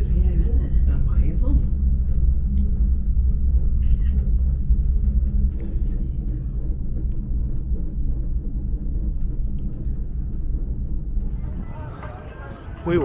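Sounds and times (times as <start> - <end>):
gondola cabin rumble: 0.0 - 13.0
faint light ticks: 2.1 - 2.7.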